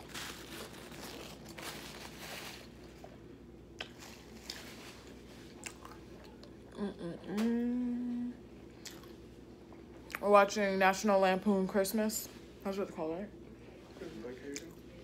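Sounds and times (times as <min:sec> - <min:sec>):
person humming mmm: 0:06.7 - 0:08.4.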